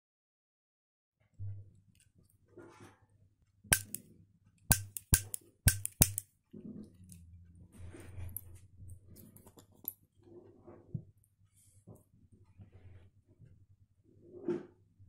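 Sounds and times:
sharp clicks of hand-held device: 0:03.7 - 0:04.0, 0:04.7 - 0:06.2.

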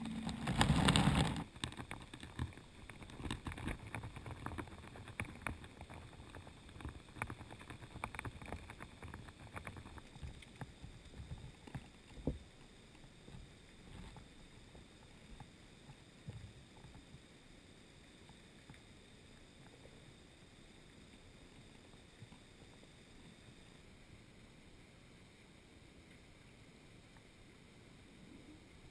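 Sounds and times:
underwater clicks and knocks: 0:00.0 - 0:12.7
low steady hiss: 0:00.0 - 0:28.9.

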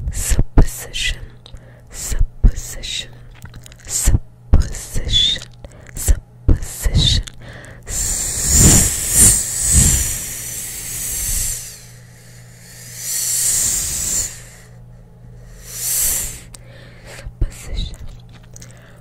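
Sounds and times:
hissing close to microphone: 0:07.9 - 0:14.8, 0:15.5 - 0:16.6.

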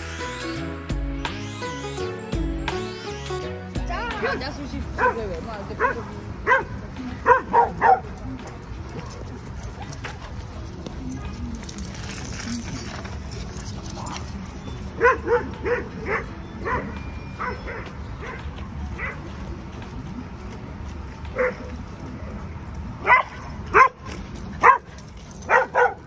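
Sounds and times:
dogs barking: 0:04.9 - 0:11.9, 0:13.4 - 0:19.3, 0:21.3 - 0:26.0.

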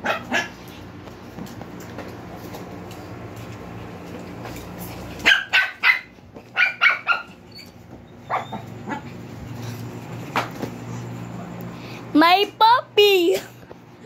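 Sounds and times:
small dogs barking: 0:00.0 - 0:00.8, 0:05.2 - 0:09.3.

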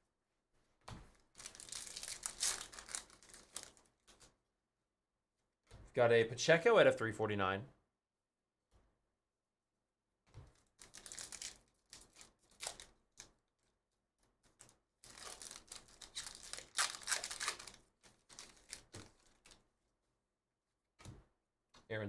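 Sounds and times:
foil wrapper tearing and crinkling: 0:01.3 - 0:04.3, 0:10.6 - 0:13.3, 0:14.6 - 0:19.6.

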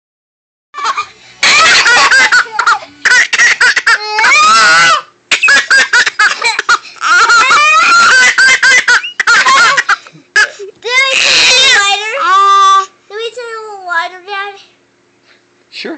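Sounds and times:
baby laughing: 0:00.8 - 0:12.4.

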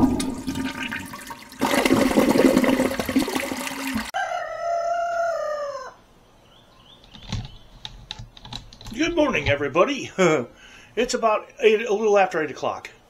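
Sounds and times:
rooster crowing: 0:04.1 - 0:06.0.

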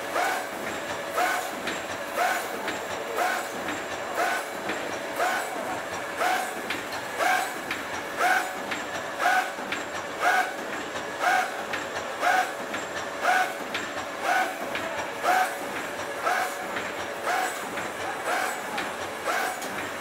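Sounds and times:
steady machine noise: 0:00.0 - 0:20.0
welding machine clanks: 0:00.1 - 0:20.0.

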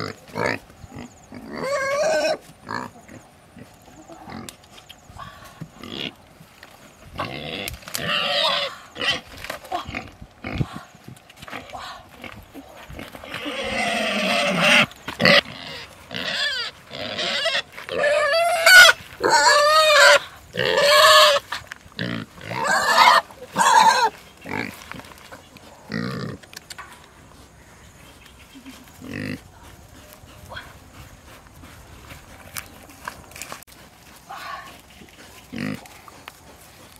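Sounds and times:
pig squealing: 0:01.4 - 0:02.9, 0:07.2 - 0:09.2, 0:13.3 - 0:21.4, 0:22.0 - 0:24.7.

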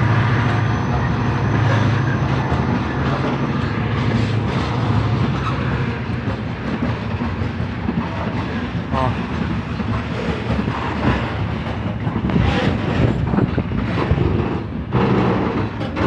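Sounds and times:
train wheels clattering on rails: 0:00.0 - 0:16.0.

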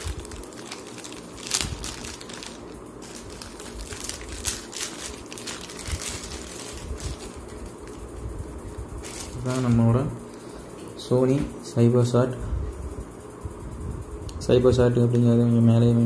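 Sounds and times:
plastic bag crinkling: 0:00.0 - 0:08.2, 0:09.0 - 0:09.8.

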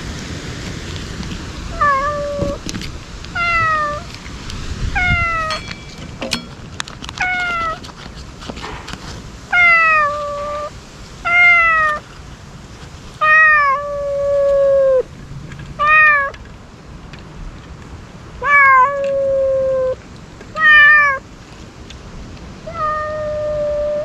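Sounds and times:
cat meowing: 0:01.7 - 0:02.6, 0:03.4 - 0:04.1, 0:05.0 - 0:05.6, 0:07.2 - 0:07.8, 0:09.5 - 0:10.7, 0:11.3 - 0:12.0, 0:13.2 - 0:15.0, 0:15.8 - 0:16.4, 0:18.4 - 0:20.0, 0:20.6 - 0:21.2, 0:22.7 - 0:24.0.

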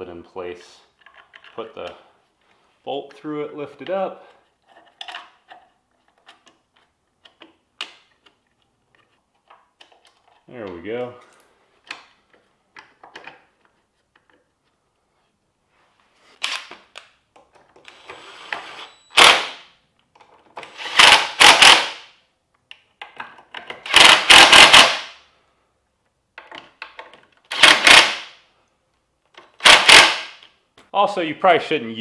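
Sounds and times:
clicks and rattles of bolts: 0:01.0 - 0:01.9, 0:04.6 - 0:10.5, 0:11.2 - 0:14.4, 0:22.6 - 0:25.0, 0:26.4 - 0:28.2
impact driver hammering: 0:20.9 - 0:22.0, 0:23.9 - 0:25.0, 0:27.6 - 0:28.3, 0:29.6 - 0:30.4.

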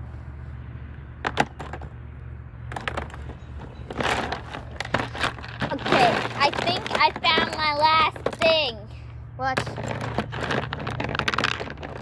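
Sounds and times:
rummaging through makeup case: 0:02.7 - 0:08.7, 0:09.6 - 0:12.0.

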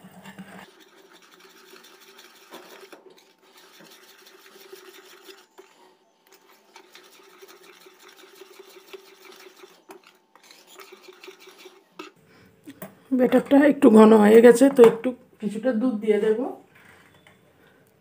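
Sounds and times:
fork beating batter in plate: 0:00.6 - 0:12.2.

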